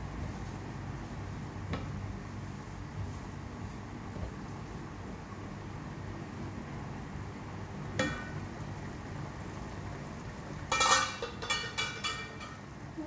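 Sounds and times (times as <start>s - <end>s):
metallic kitchenware clinks and rattles: 10.7s - 12.6s
pot lid clinking: 10.7s - 12.6s.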